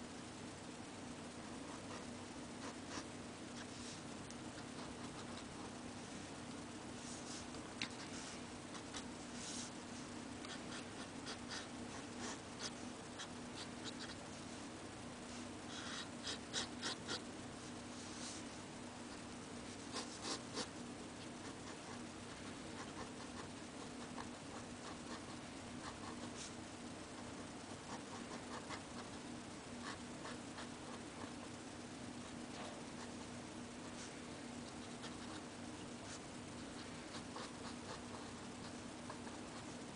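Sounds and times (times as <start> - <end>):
steady low hum: 0.0 - 39.9
pen nib scratching paper: 19.8 - 26.5, 27.9 - 29.2, 36.8 - 39.8.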